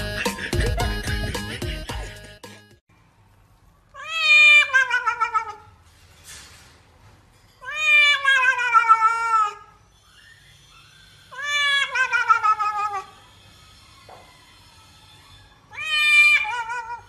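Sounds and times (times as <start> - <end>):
cat yowling: 3.9 - 5.8, 7.6 - 10.4, 11.0 - 17.0.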